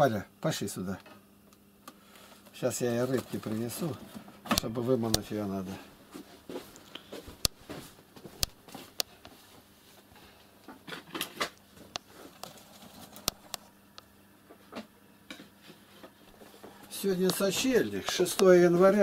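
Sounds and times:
quiet shuffling: 15.6s - 19.0s.

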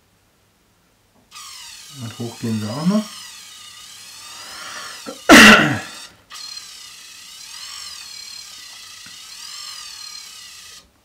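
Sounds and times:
small electric motor whirring: 1.3s - 11.0s
short vocal burst: 4.4s - 6.1s.

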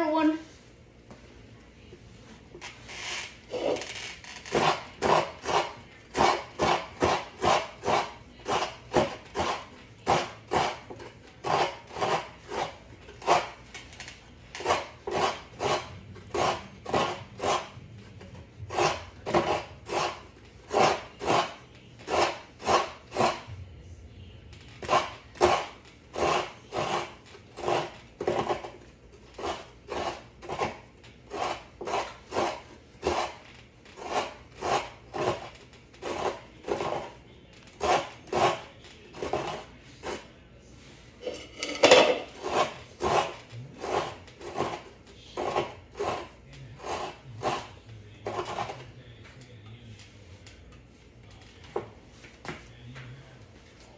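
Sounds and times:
coconut grating rasping strokes: 2.6s - 23.5s, 24.8s - 40.3s, 42.2s - 48.9s.

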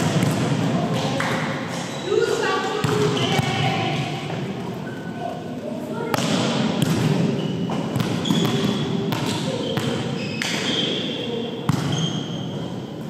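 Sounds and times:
volleyball bouncing on wooden floor: 0.0s - 1.4s, 2.8s - 4.1s, 6.1s - 10.8s, 11.7s - 12.2s
sneaker squeaks: 1.6s - 4.1s, 4.8s - 5.4s, 6.1s - 13.0s
volleyball smacks echoing: 6.1s - 10.8s.

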